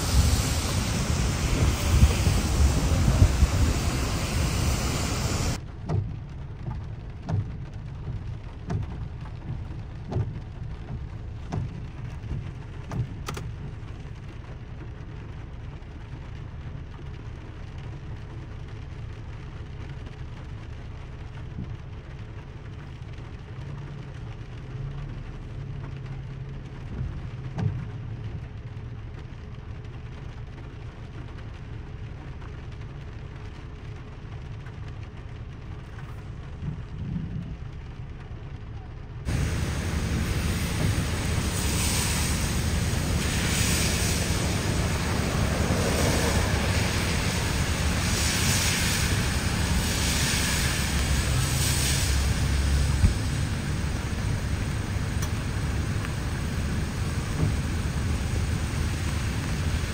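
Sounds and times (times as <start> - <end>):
loud rushing noise: 0.0 - 5.6, 39.3 - 59.9
steady low rumble: 0.0 - 13.8, 35.4 - 59.9
rain: 0.0 - 59.9.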